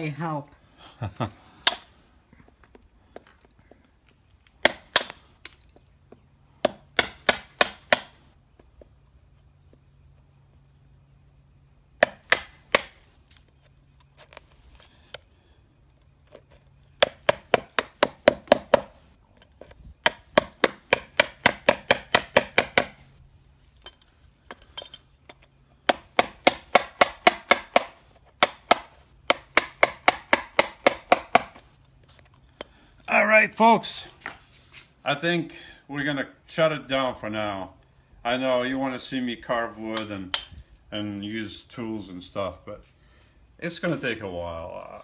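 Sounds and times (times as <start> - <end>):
hammer striking steel chisel: 6.6 - 8.2, 20.0 - 23.0, 25.9 - 31.6.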